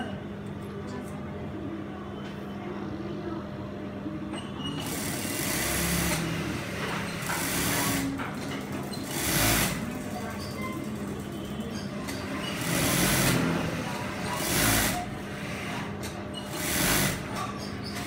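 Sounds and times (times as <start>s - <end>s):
sewing machine motor hum: 4.8s - 8.2s, 8.9s - 9.9s, 12.2s - 15.8s, 16.5s - 17.3s
sewing machine stitching: 4.8s - 10.5s, 12.0s - 18.0s.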